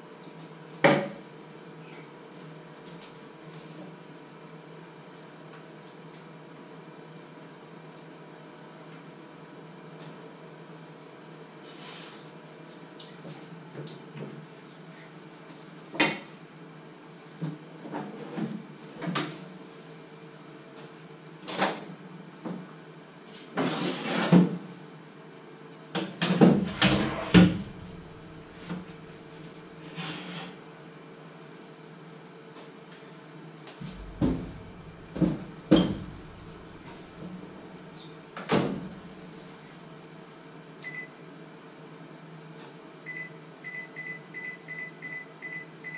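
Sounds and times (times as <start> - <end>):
faint low hum: 26.6 - 29.8, 33.8 - 39.3
clunks and knocks on worktop: 33.9 - 36.9.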